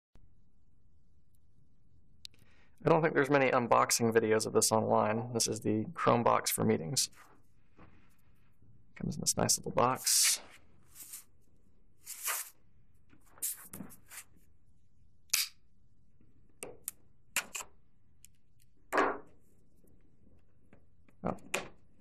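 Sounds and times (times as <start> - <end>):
rustling scrape: 10.1 - 11.3, 12.0 - 12.6.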